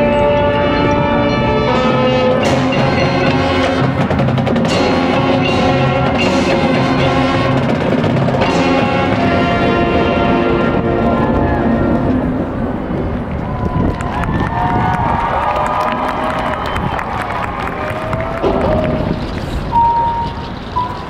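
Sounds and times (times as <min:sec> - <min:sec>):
marching band playing: 0:00.0 - 0:12.5
loud accented band hits: 0:00.2 - 0:10.8.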